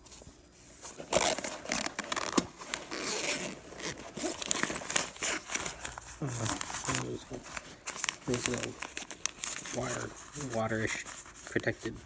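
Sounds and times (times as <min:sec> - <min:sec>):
nylon bag rustling: 0:00.8 - 0:11.5
zipper rattling: 0:01.0 - 0:07.2.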